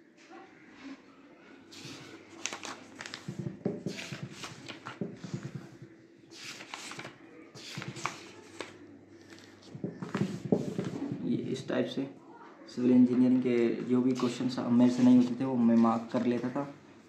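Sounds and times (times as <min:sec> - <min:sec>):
paper pages turning and rustling: 0:01.7 - 0:11.3.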